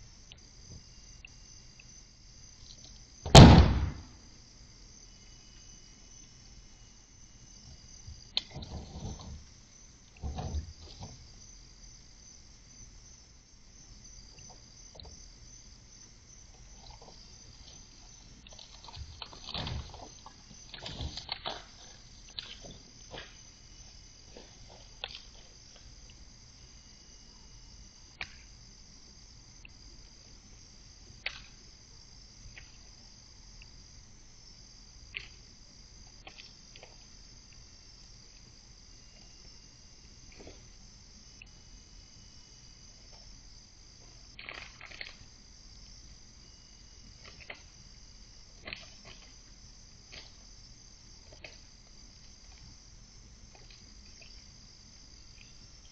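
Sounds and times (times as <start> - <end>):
insects trilling: 0.0 - 55.9.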